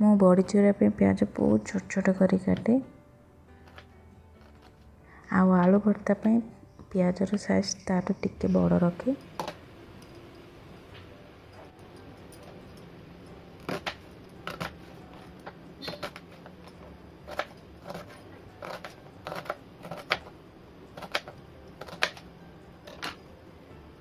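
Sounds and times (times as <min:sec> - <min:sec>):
knife chopping on cutting board: 0:17.2 - 0:20.3, 0:21.0 - 0:22.2.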